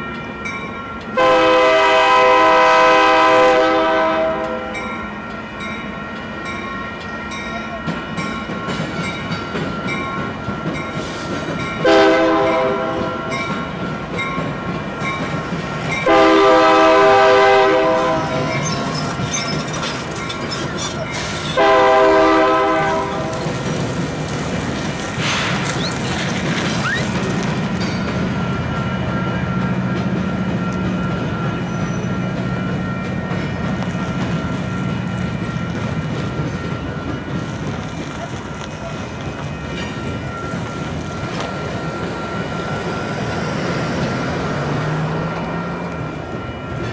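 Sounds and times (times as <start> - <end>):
rail clicks: 0.0 - 46.9
train rumble and wheel clatter: 0.0 - 46.9
locomotive air horn: 1.2 - 4.8, 11.8 - 13.3, 16.0 - 18.7, 21.5 - 23.4.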